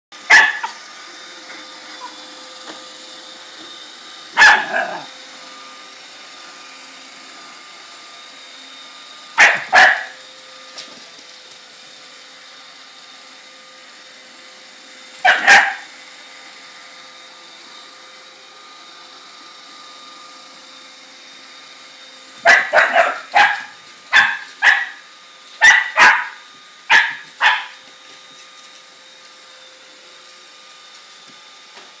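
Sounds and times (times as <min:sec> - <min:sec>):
robot vacuum humming: 0:00.2 - 0:32.0
puppy barking: 0:00.3 - 0:00.8, 0:04.4 - 0:05.1, 0:09.4 - 0:10.2, 0:15.2 - 0:15.9, 0:22.4 - 0:25.0, 0:25.6 - 0:27.8.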